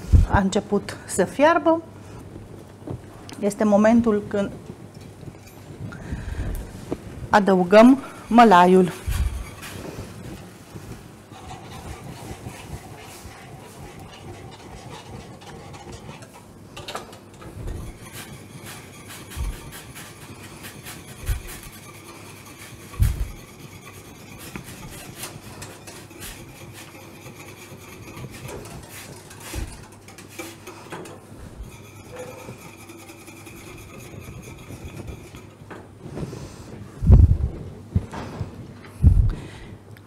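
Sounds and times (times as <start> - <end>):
whisk scraping metal pan: 7.5 - 16.6, 17.2 - 35.7.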